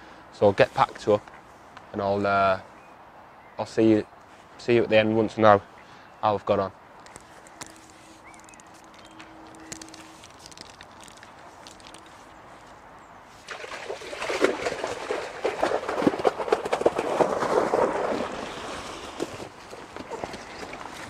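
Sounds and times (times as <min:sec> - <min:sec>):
water splashing and pouring: 0:08.9 - 0:12.3, 0:13.4 - 0:21.0.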